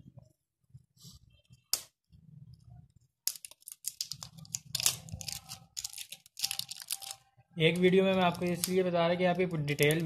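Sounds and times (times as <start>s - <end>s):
plastic wrapping crinkling and tearing: 3.4s - 8.9s.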